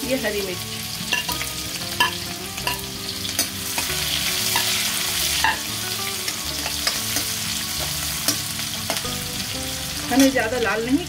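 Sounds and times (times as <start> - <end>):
onions sizzling in hot oil: 0.0 - 11.0
steel spoon scraping a pan: 2.0 - 9.0.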